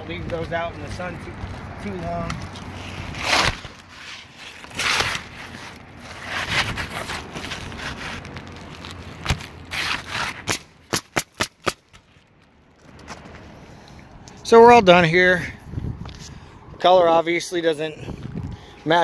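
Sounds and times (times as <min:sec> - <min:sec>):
shingles scraping on roof: 0:02.8 - 0:11.8
pneumatic nailer firing: 0:09.8 - 0:11.8.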